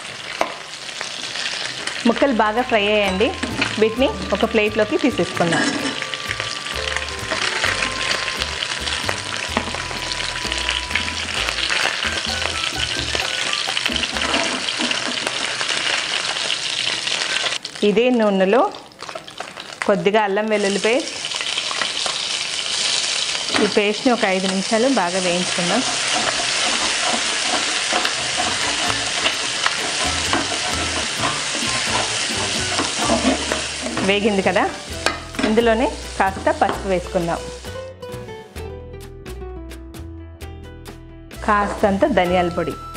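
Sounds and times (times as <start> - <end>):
fish sizzling in oil: 0.0 - 17.9, 18.5 - 37.8
spatula scraping pan: 5.4 - 6.0, 13.3 - 16.4, 25.2 - 36.8.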